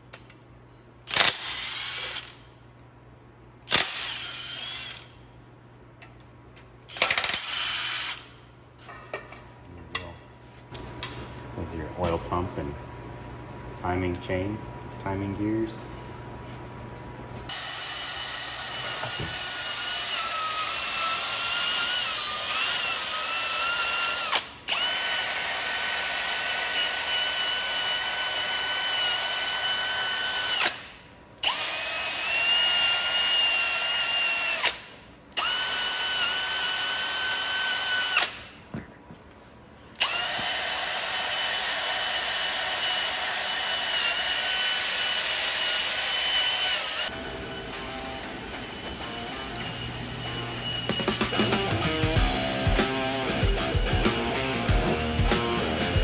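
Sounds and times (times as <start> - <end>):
cordless drill whining: 1.1 - 2.4, 3.7 - 5.1, 6.9 - 8.3, 17.5 - 30.8, 31.4 - 34.8, 35.4 - 38.4, 40.0 - 52.6.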